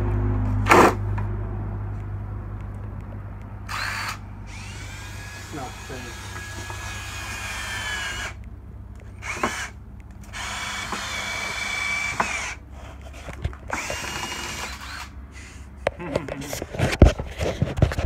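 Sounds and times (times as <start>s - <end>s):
cordless drill whining: 3.7s - 8.4s, 9.1s - 12.6s, 13.2s - 15.7s.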